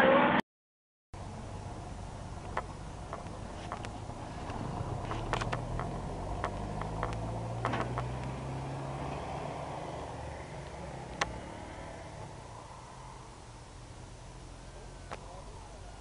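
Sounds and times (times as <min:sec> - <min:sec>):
low engine hum: 0:01.2 - 0:16.0
light clicks and taps: 0:02.4 - 0:08.4.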